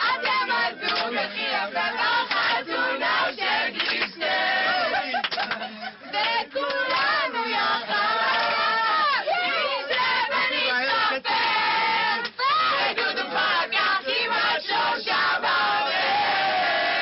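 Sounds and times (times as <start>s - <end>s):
group singing a chorus: 0.0s - 5.2s, 6.0s - 17.0s.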